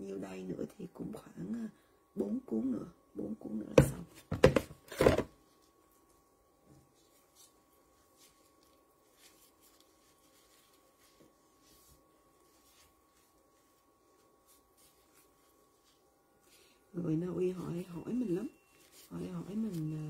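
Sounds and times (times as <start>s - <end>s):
faint steady hum: 0.0s - 20.0s
gloved hands rustling wrapper: 6.8s - 16.9s, 17.9s - 20.0s.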